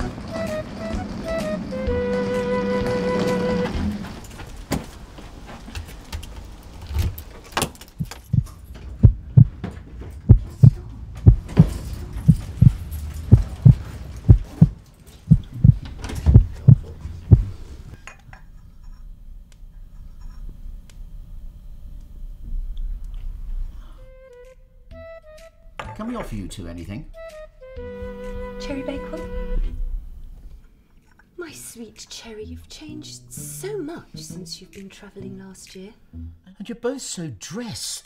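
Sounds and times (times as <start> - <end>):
heartbeat thuds: 8.0 - 17.6.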